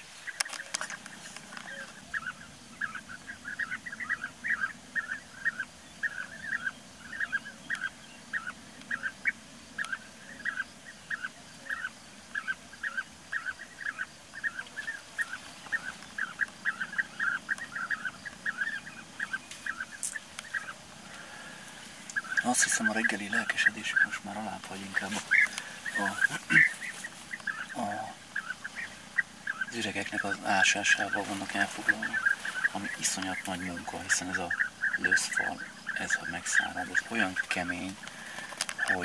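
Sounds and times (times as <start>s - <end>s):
birds giving trilled calls: 0.0s - 39.0s.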